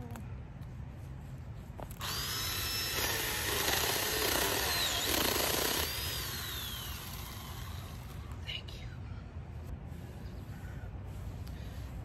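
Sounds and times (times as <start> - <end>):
chainsaw cutting branch: 2.0 - 8.2
mini chainsaw whining: 2.0 - 8.2.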